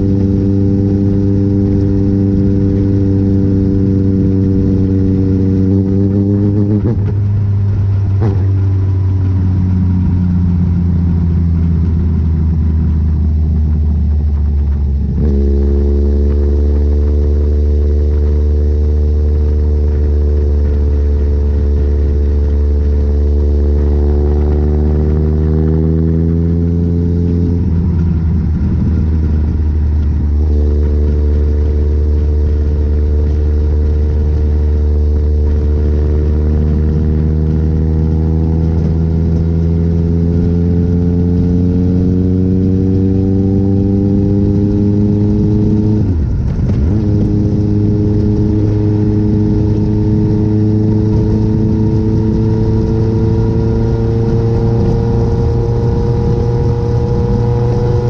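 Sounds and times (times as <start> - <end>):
motorcycle engine at speed: 0.0 - 58.0
wind and road noise: 0.0 - 58.0.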